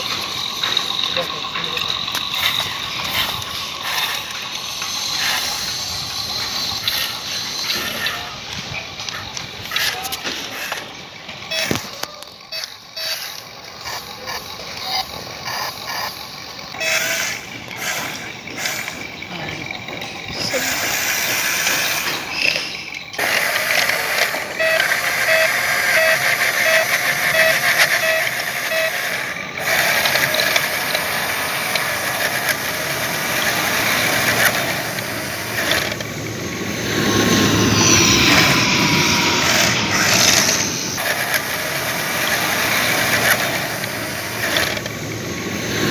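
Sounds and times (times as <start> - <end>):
electric gear motors whirring: 0.0 - 45.9
electronic beeps: 11.5 - 13.3, 24.5 - 29.3, 33.4 - 41.3.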